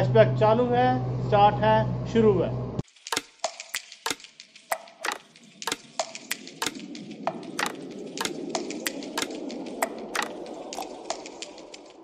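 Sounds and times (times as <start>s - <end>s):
sharp clicks: 3.0s - 12.0s.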